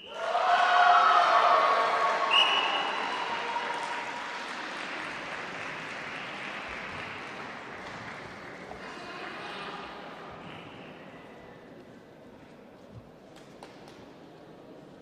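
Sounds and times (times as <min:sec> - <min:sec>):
spectators cheering and applauding: 0:00.1 - 0:09.2
short whistle: 0:02.3 - 0:03.0.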